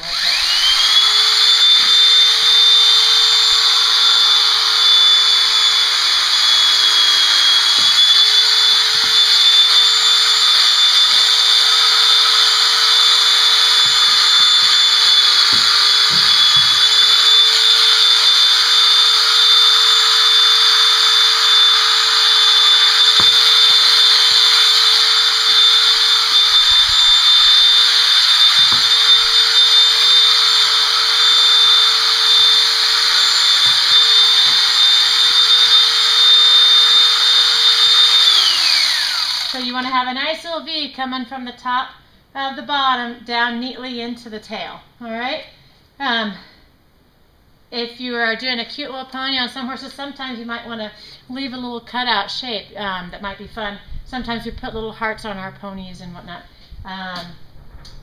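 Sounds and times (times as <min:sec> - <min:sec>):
electric clippers whining: 0:00.0 - 0:39.8.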